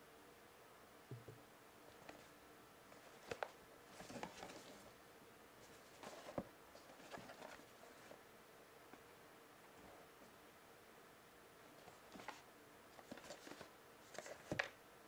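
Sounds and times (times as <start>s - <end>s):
cardboard box rustles and taps: 13.0s - 14.8s.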